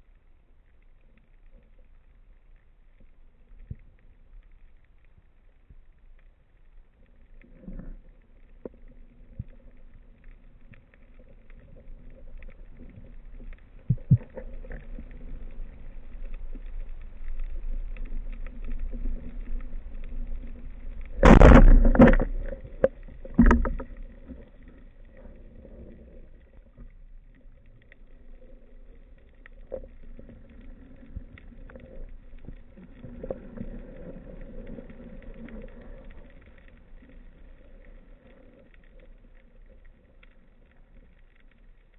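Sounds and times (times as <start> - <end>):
underwater hum and hiss: 0.0 - 41.9
speargun firing underwater: 21.2 - 22.2.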